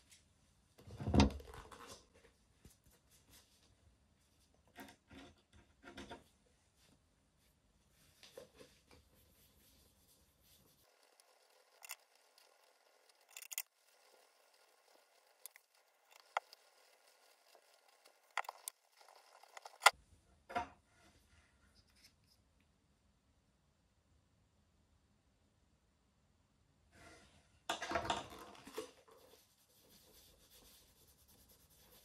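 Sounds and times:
cloth rubbing on leather shoe: 0:08.0 - 0:11.1, 0:29.1 - 0:32.0.

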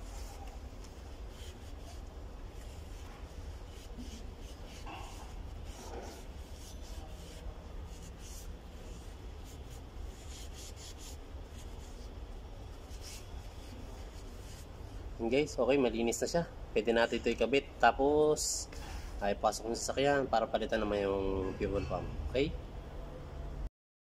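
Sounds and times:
rag wiping metal: 0:00.0 - 0:14.9.

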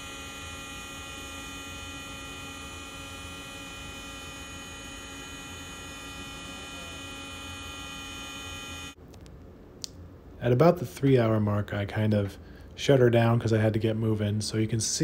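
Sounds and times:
router whine and hum: 0:00.0 - 0:09.0.

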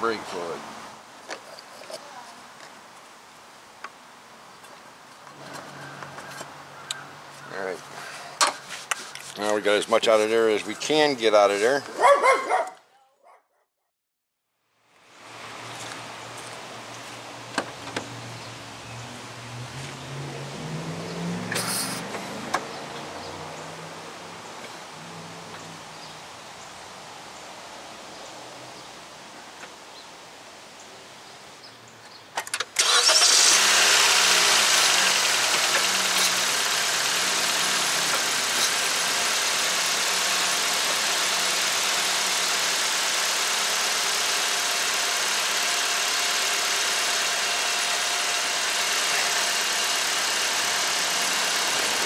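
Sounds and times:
engine starting and idling: 0:32.7 - 0:52.0.

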